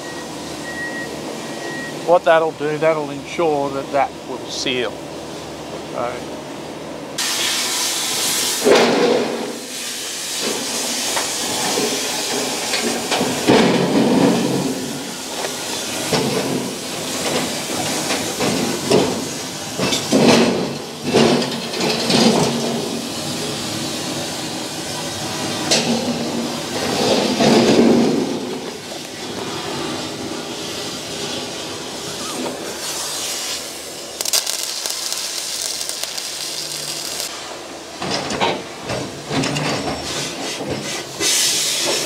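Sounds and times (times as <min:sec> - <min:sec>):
loud uneven hissing: 0:22.9 - 0:37.6.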